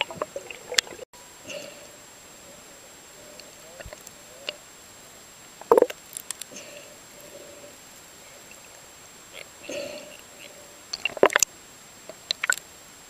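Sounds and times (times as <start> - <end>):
dolphin clicks: 12.1 - 12.6.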